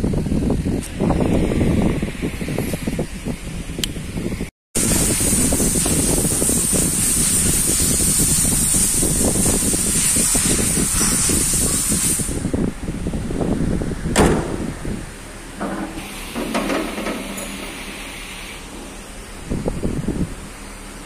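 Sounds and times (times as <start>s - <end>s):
car hood slamming shut: 14.1s - 14.7s.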